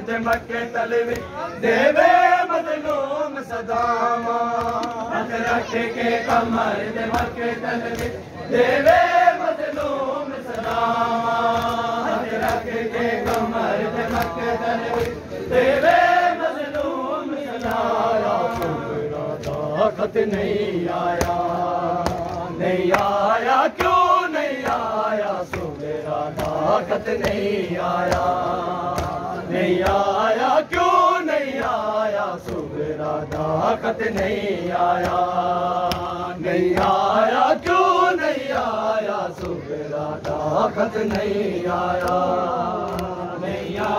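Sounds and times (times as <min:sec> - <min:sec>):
men chanting a lament: 0:00.0 - 0:43.9
hands slapping bare chests: 0:00.2 - 0:01.3, 0:02.0 - 0:03.1, 0:03.7 - 0:05.6, 0:06.3 - 0:08.2, 0:08.8 - 0:15.2, 0:15.8 - 0:43.9.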